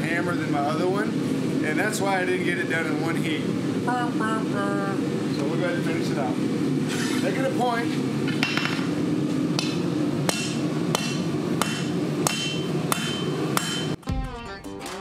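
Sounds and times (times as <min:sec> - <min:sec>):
hammer striking hot metal on anvil: 0:09.6 - 0:14.0
guitar music: 0:14.0 - 0:15.0.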